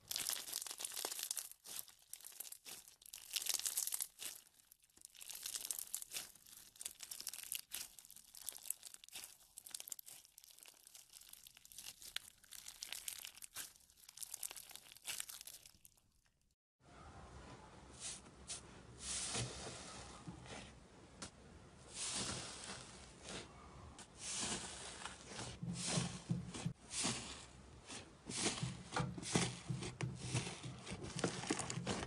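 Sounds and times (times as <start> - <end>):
beaded slime crackling when squeezed: 0.0 - 16.1.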